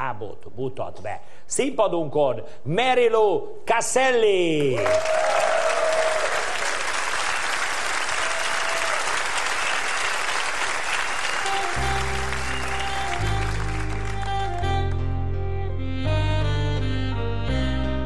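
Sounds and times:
audience applauding: 0:04.7 - 0:14.7
slow accompaniment music: 0:10.9 - 0:18.0
deep held bass notes: 0:11.4 - 0:18.0.

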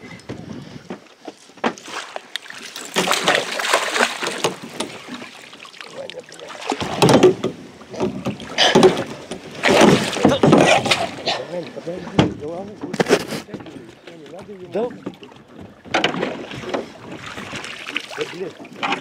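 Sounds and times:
water splashing against boat: 0:00.0 - 0:19.0
fish thrashing in water: 0:01.7 - 0:11.6, 0:15.8 - 0:19.0.

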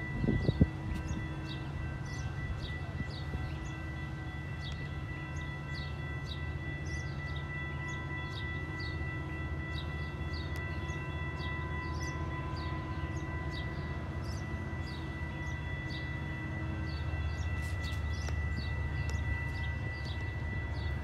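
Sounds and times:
train rumble with high tones: 0:00.0 - 0:21.0.

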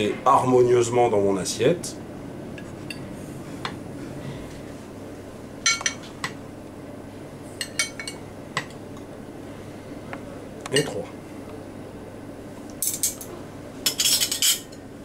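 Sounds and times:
cutlery clinking on plates: 0:13.9 - 0:14.8.

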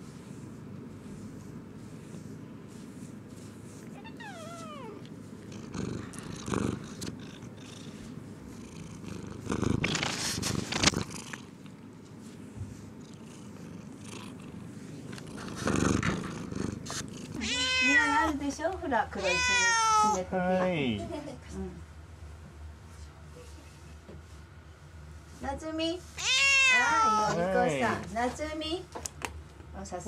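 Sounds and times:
cat purring: 0:01.0 - 0:18.6
cat meow: 0:04.0 - 0:05.0, 0:17.4 - 0:18.3, 0:19.2 - 0:20.2, 0:26.2 - 0:27.4.

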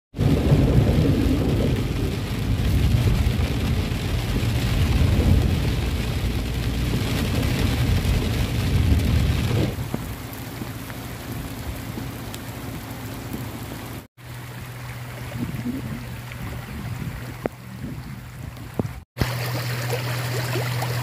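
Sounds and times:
car and road rumble: 0:00.1 - 0:21.0
rain hissing on a car: 0:00.2 - 0:16.6.

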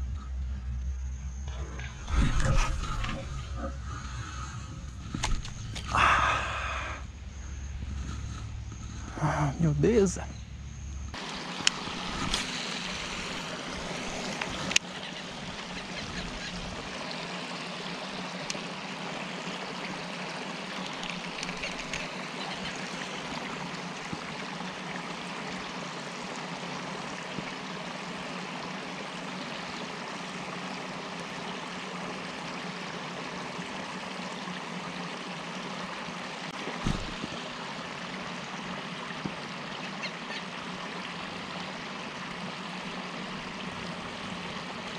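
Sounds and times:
low steady hum: 0:00.0 - 0:44.9
running water rushing: 0:01.4 - 0:10.3, 0:11.1 - 0:44.9
short thump: 0:36.8 - 0:37.2.

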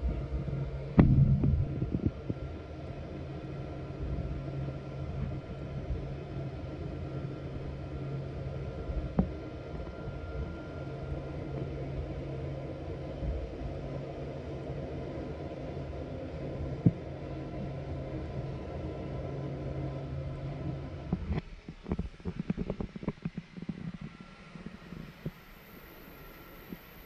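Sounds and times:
jet engines droning: 0:00.0 - 0:21.3, 0:23.5 - 0:27.0
faint high engine whine: 0:00.0 - 0:27.0
jet engines humming: 0:23.9 - 0:27.0.

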